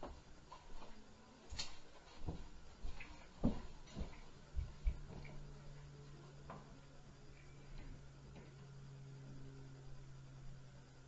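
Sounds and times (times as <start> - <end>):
low steady hum: 0.0 - 11.0
footsteps stomping through ceiling: 2.2 - 5.4.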